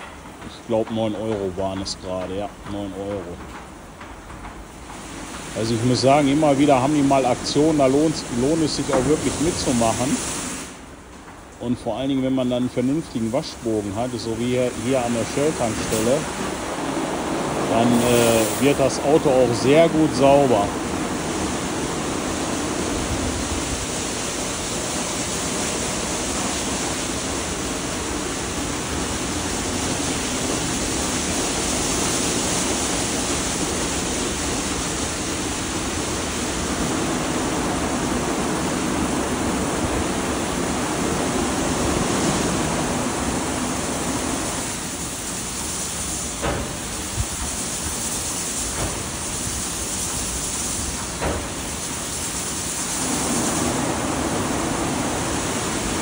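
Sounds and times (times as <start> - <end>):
short knocks: 0.0 - 5.6
water spraying: 0.0 - 56.0.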